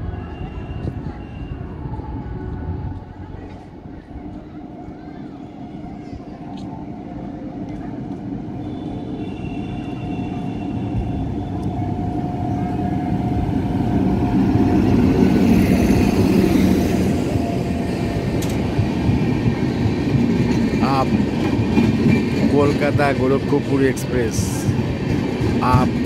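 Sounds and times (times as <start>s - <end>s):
train rumble passing: 0.0s - 26.0s
train wheels rolling: 0.2s - 26.0s.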